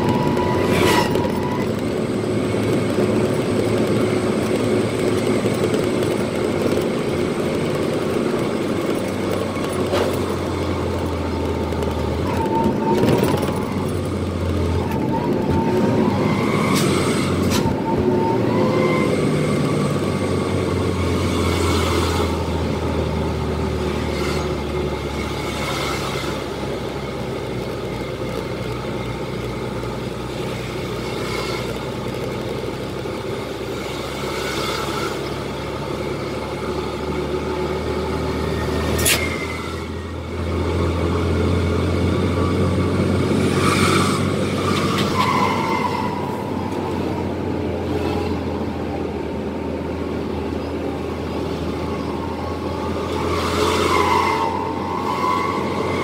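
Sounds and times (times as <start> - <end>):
truck engine pulling: 0.0 - 56.0.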